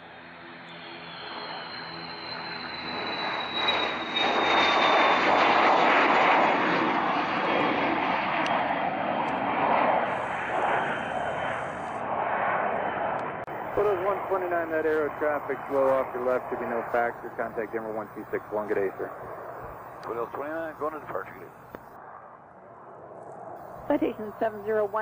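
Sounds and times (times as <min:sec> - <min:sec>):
jet taking off: 0:00.0 - 0:25.0
high fan whine: 0:13.2 - 0:22.0, 0:23.6 - 0:25.0.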